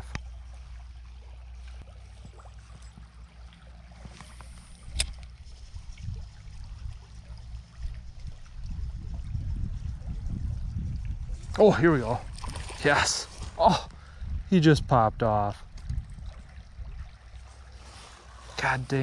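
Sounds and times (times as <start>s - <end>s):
stream flowing: 0.0s - 10.2s, 10.8s - 14.2s, 15.6s - 19.0s
low rumble: 1.8s - 12.5s
sharp click: 4.8s - 5.3s.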